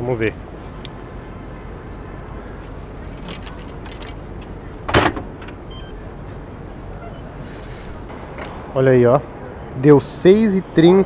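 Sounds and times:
city traffic: 0:00.0 - 0:11.0
bike locking into dock clunk: 0:04.8 - 0:06.0
faint high beeps: 0:05.7 - 0:06.1.

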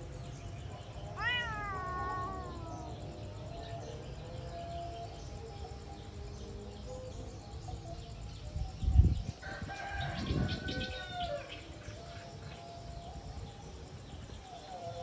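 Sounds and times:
rooster crowing: 0:09.4 - 0:11.6.

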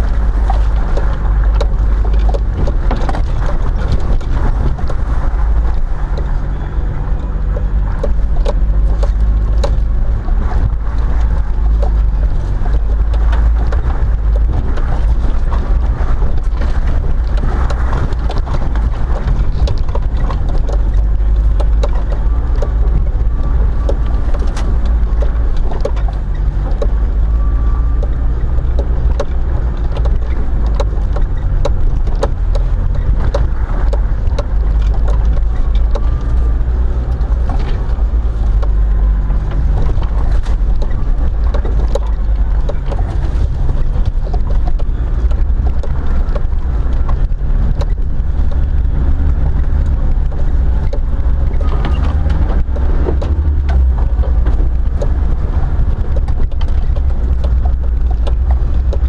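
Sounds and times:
vehicle engine and tyres rumbling: 0:00.0 - 0:59.0
vehicle knocks and rattles: 0:00.0 - 0:59.0.

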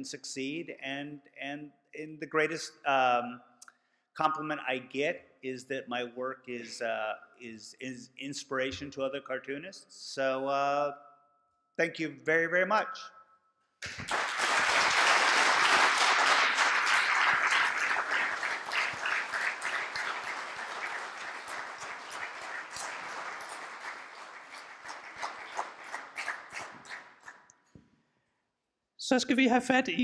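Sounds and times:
audience applauding: 0:13.8 - 0:27.5.

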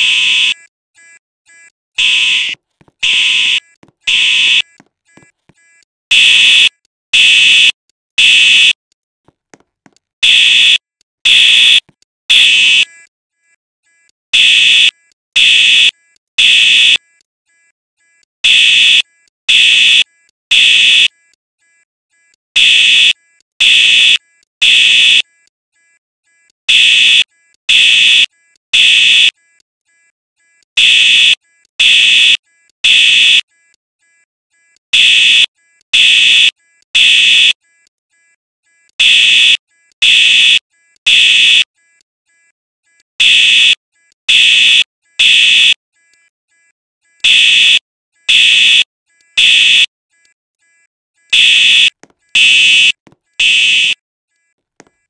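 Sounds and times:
fire alarm beeping: 0:06.1 - 0:08.8, 0:10.2 - 0:12.9, 0:14.4 - 0:17.0, 0:18.4 - 0:21.1, 0:22.6 - 0:25.2, 0:26.7 - 0:29.3, 0:30.8 - 0:33.5, 0:35.0 - 0:37.6, 0:39.0 - 0:41.7, 0:43.2 - 0:45.8, 0:47.2 - 0:49.9, 0:51.3 - 0:54.0.

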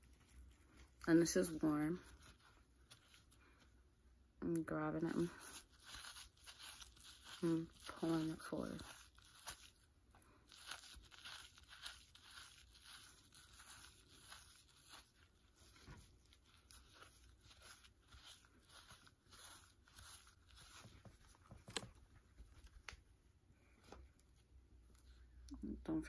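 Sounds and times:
rag rubbing on hair: 0:00.0 - 0:03.4, 0:04.6 - 0:21.9.

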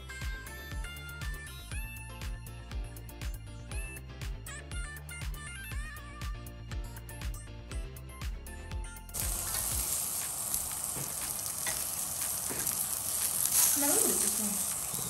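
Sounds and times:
background music with a beat: 0:00.0 - 0:13.5
bacon sizzling on a grill pan: 0:09.2 - 0:15.0.

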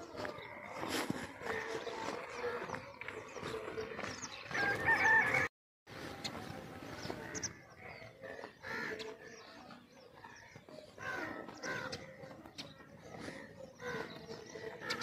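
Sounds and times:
rooster crowing: 0:04.5 - 0:05.5
small birds chirping: 0:06.0 - 0:15.0.

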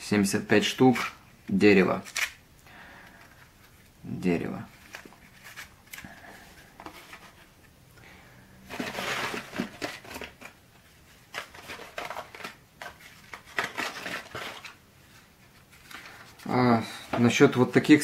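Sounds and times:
matchboxes rustling: 0:08.7 - 0:17.4.

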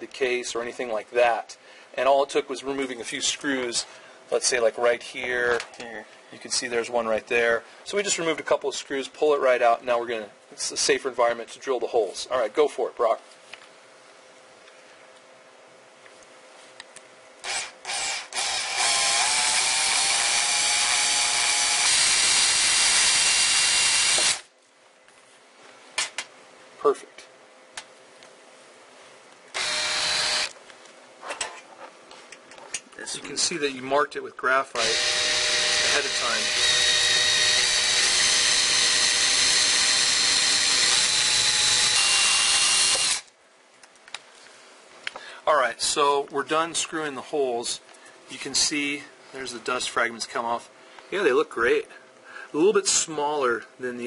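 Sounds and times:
cordless drill boring through metal: 0:17.4 - 0:24.5, 0:29.5 - 0:30.5, 0:34.8 - 0:43.3.

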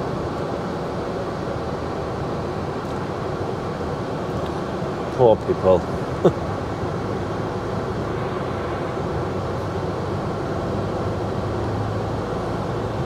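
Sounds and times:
lorry engine droning in cab: 0:00.0 - 0:13.0.

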